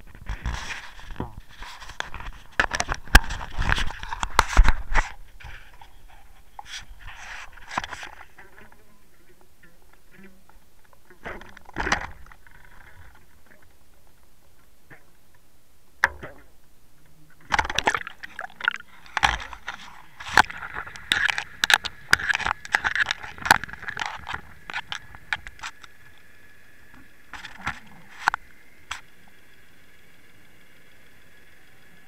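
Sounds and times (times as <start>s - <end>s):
water gurgling and rushing: 17.5s - 25.2s.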